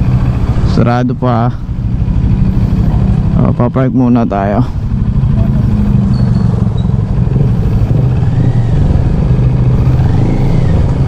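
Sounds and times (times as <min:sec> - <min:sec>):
motorcycle engine idling: 0:00.0 - 0:11.0.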